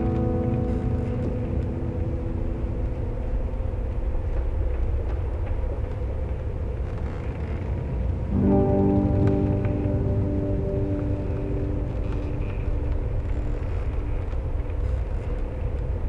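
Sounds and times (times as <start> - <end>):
sustained musical chord: 0.0 - 3.8, 8.4 - 14.6
deep steady rumble: 0.0 - 16.0.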